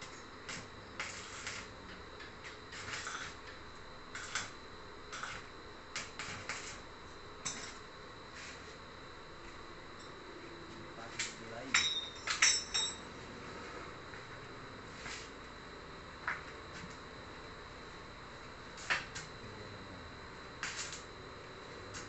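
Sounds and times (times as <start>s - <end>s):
welding arc crackling: 0.0s - 8.7s, 18.5s - 19.4s, 20.4s - 21.2s.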